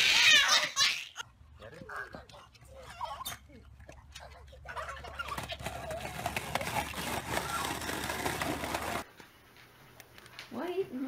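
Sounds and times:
skateboard wheels rolling on concrete: 0:05.0 - 0:09.2.

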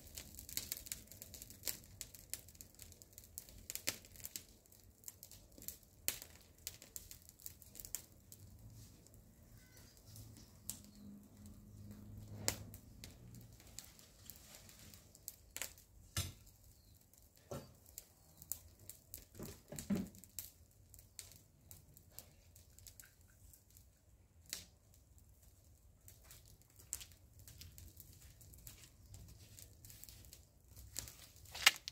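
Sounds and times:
crackles and snaps of dry leaves: 0:00.0 - 0:31.9
rustling of plants: 0:07.6 - 0:15.7, 0:26.1 - 0:31.9.

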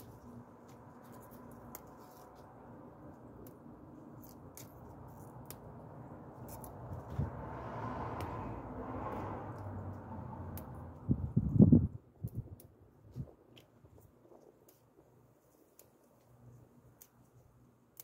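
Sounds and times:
stems snapping: 0:00.0 - 0:02.5, 0:03.4 - 0:05.7.

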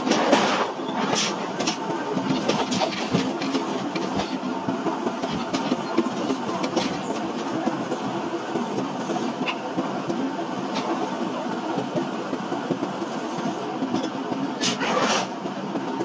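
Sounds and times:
heavy machinery running: 0:00.0 - 0:08.0.

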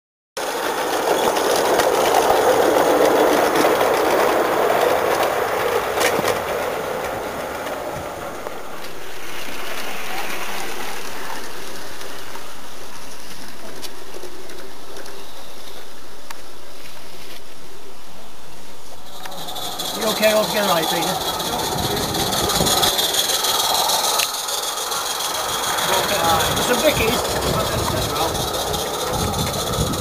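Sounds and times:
distant train running: 0:00.4 - 0:16.6, 0:17.8 - 0:30.0
model steam locomotive hissing: 0:18.8 - 0:30.0.

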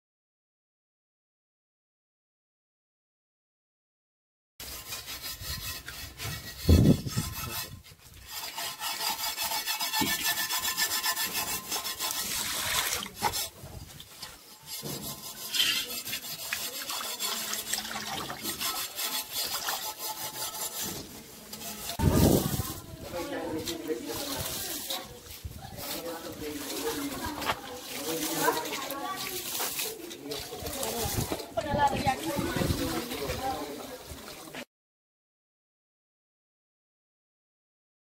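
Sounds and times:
scraping and rubbing on metal pots: 0:04.6 - 0:34.3
water: 0:11.2 - 0:20.8, 0:25.8 - 0:34.7.

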